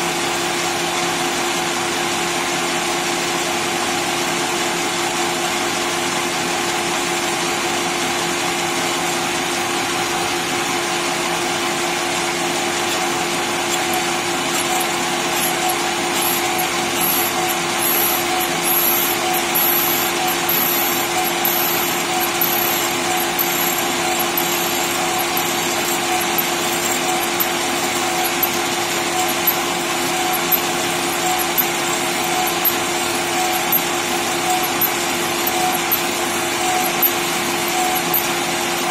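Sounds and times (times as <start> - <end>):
lathe spindle whine: 8.4 - 38.9
drill cutting hiss: 12.6 - 38.9
sharp ticks: 13.7 - 38.9.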